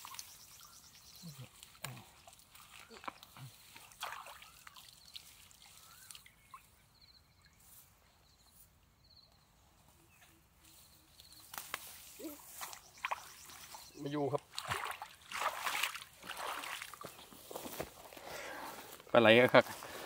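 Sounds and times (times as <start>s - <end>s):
water dripping and splashing: 0.0s - 6.8s, 12.5s - 17.2s.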